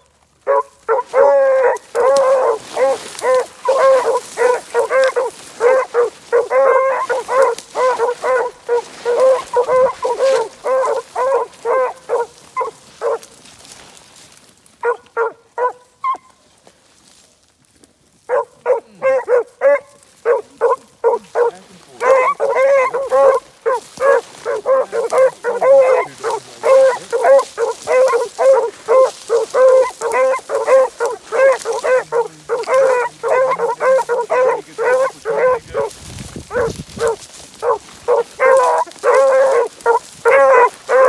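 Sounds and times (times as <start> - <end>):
hounds barking: 0.4 - 13.4, 14.8 - 16.4, 18.2 - 41.0.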